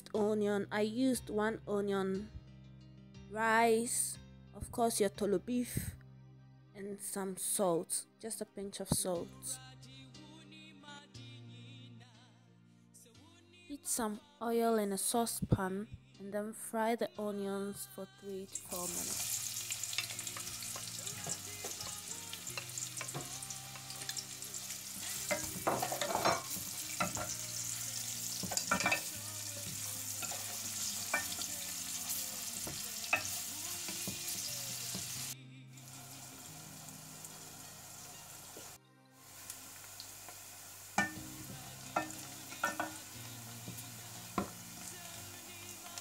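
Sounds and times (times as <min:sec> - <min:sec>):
onions sizzling in oil: 0:18.6 - 0:46.0.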